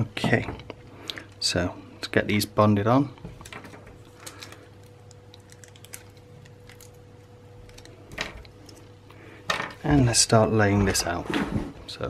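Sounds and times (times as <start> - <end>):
faint steady hum: 0.0 - 12.0
tape peeling clicks and rustles: 3.4 - 8.9.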